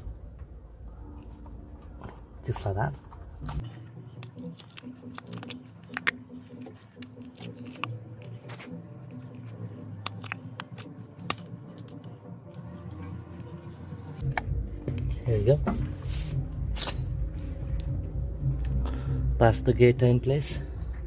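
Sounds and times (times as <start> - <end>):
rubber squishing and rubbing: 3.4 - 13.5.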